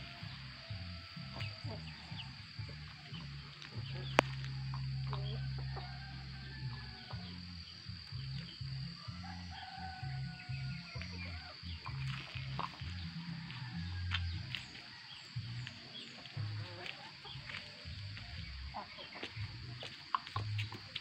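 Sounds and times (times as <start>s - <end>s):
background music with bass line: 0.0s - 21.0s
chickens clucking: 0.0s - 21.0s.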